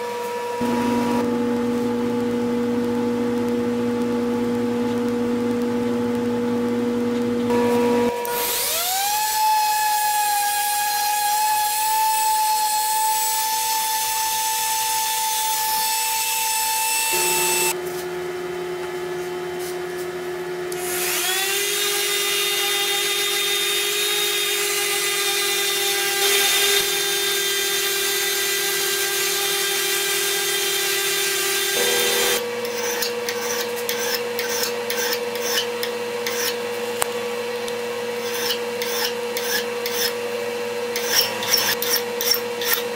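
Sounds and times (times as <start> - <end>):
orbital sander whining: 16.8 - 17.8, 31.4 - 32.6.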